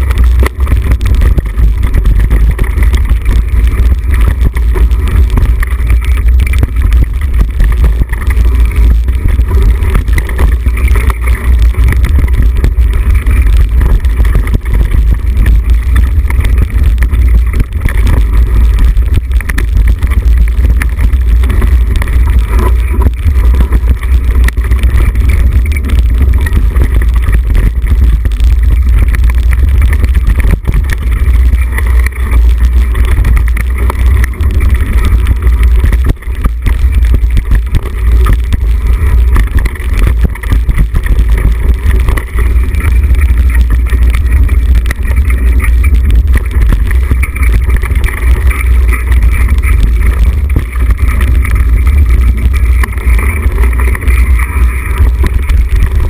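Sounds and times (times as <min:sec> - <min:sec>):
bike knocks and rattles: 0:00.0 - 0:56.0
wind buffeting microphone: 0:00.0 - 0:56.0.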